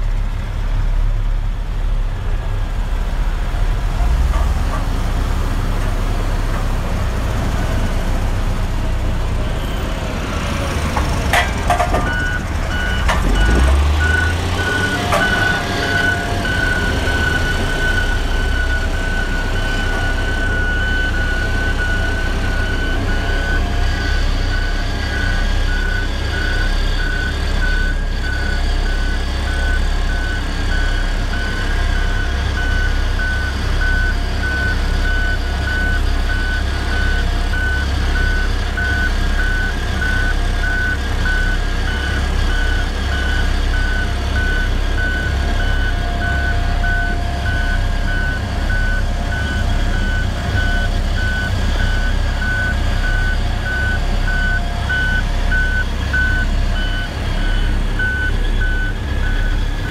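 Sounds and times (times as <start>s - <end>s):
diesel engine low rumble: 0.0s - 59.9s
backup alarm beeping: 11.3s - 59.9s.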